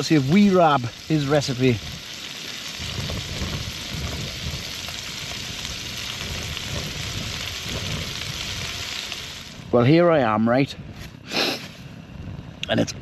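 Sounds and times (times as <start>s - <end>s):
food sizzling in a frying pan: 0.0s - 10.4s.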